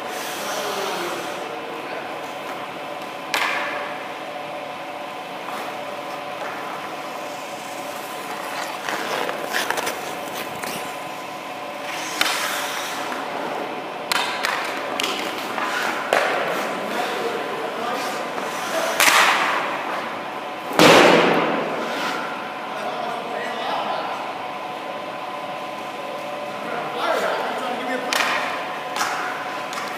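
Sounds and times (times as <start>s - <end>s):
steady hum: 0.0s - 29.9s
skate blades scraping ice: 7.1s - 11.2s, 11.8s - 20.0s, 21.8s - 22.3s.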